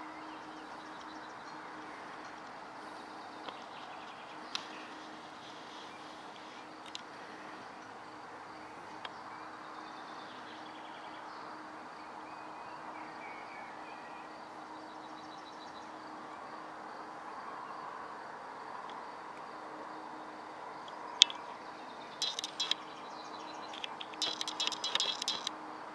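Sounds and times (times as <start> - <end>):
birds chirping: 0.0 - 11.7, 20.2 - 25.5
distant hum: 21.2 - 25.6
bird trill: 22.1 - 25.5
sharp click: 22.2 - 22.8, 23.7 - 25.5.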